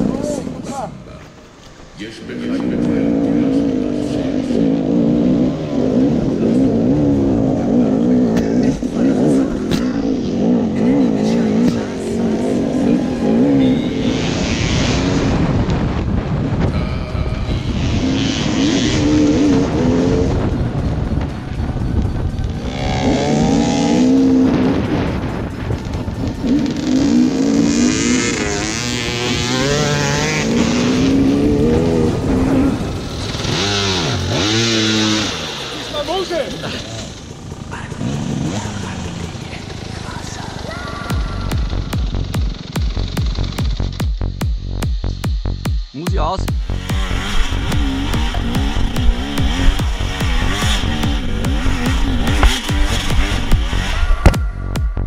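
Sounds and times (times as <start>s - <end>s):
motorcycle engine revving: 0.0s - 55.0s
wind on microphone: 3.7s - 35.4s
knocks from motorcycle: 41.1s - 45.8s, 47.7s - 53.7s.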